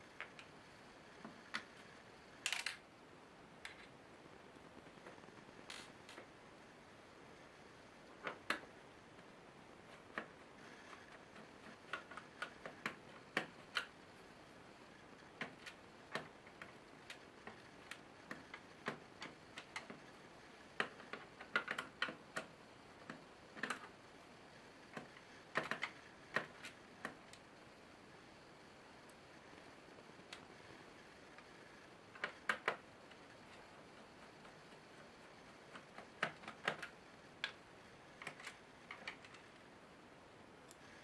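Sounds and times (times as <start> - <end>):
small screwdrivers clicking on screws: 2.4 - 2.8, 5.7 - 6.2.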